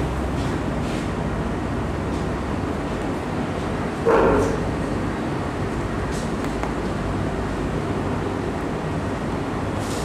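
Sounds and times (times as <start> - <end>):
steady background hum: 0.0 - 10.0
dog barking: 4.1 - 4.6.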